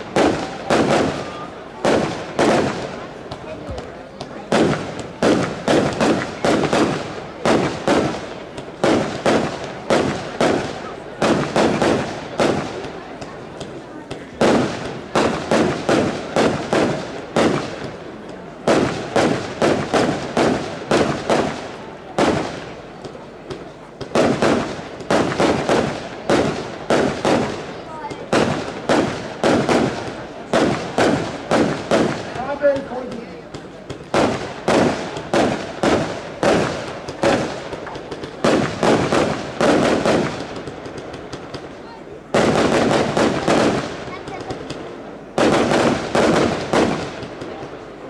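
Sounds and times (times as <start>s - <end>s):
fireworks sharp bangs: 0.0s - 48.0s.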